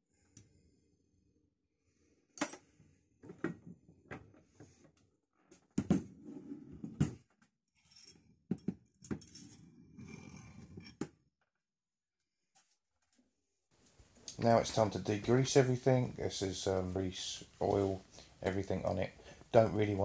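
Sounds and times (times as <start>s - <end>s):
metal vise parts knocking and clinking: 7.9s - 9.7s.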